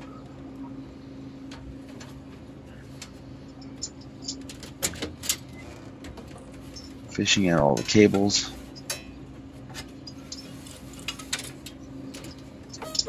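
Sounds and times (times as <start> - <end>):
steady low hum: 0.0 - 13.0
metal parts clicking and tapping: 9.8 - 13.0.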